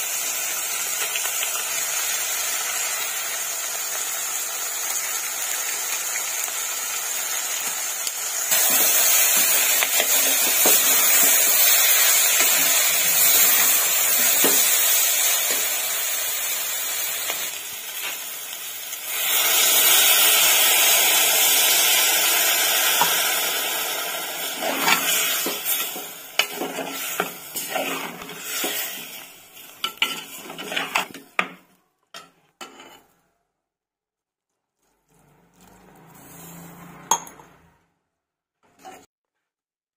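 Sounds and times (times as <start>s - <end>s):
vegetables sizzling in oil: 0.0s - 33.1s
ladle stirring and scraping: 8.5s - 15.6s, 24.4s - 31.6s, 32.2s - 33.2s, 34.5s - 37.6s, 38.6s - 39.1s.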